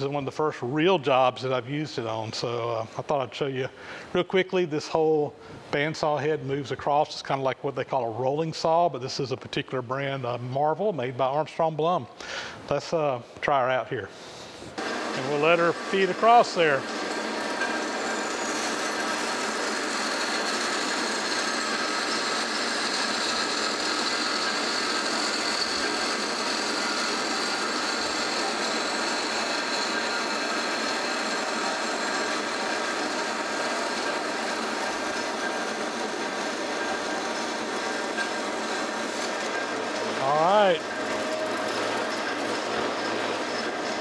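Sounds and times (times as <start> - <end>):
bandsaw cutting metal tube: 14.8 - 44.0.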